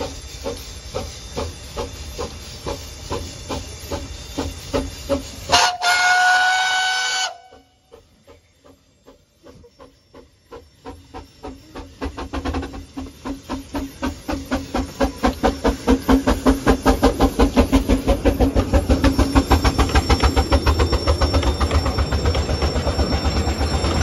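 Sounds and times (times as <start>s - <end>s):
steam locomotive chuffing: 0.0s - 24.0s.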